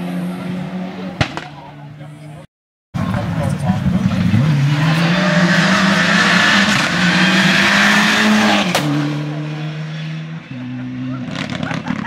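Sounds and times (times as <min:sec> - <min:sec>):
sharp crack: 0:01.2 - 0:01.7, 0:08.7 - 0:09.0
rally car engine pulling hard: 0:03.0 - 0:12.0.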